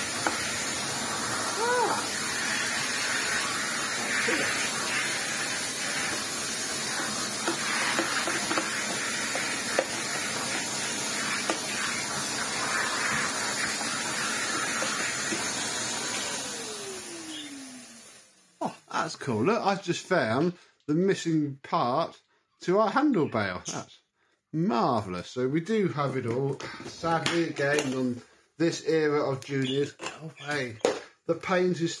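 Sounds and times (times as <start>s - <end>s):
vacuum cleaner running: 0.0s - 19.0s.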